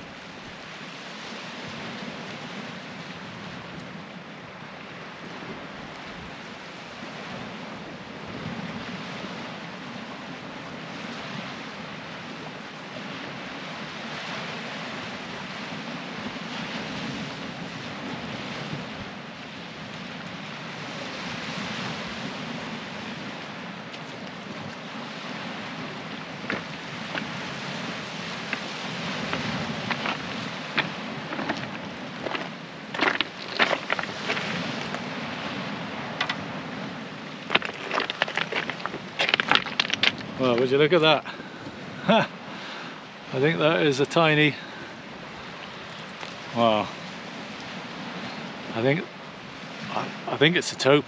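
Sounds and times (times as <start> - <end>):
waves washing over shingle: 0.0 - 51.0
wind buffeting microphone: 19.9 - 42.2
pebbles crunching underfoot: 26.4 - 27.4, 28.4 - 35.1, 37.4 - 40.7.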